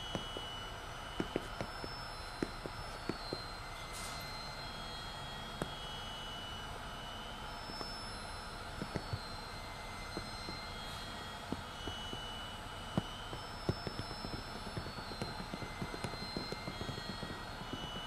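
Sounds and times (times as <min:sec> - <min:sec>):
sharp taps: 0:01.2 - 0:03.4, 0:13.7 - 0:18.0.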